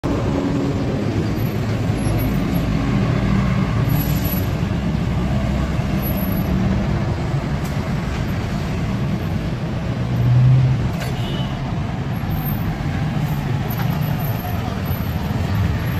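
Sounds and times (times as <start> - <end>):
traffic engines rumbling: 0.0 - 15.9.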